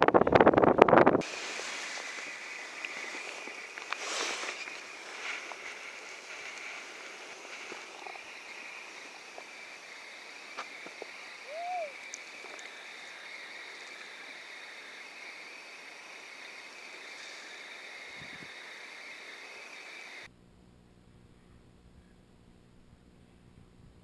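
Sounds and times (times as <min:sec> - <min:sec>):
faint outdoor hiss: 0:00.4 - 0:24.0
rising and falling call: 0:11.0 - 0:14.3.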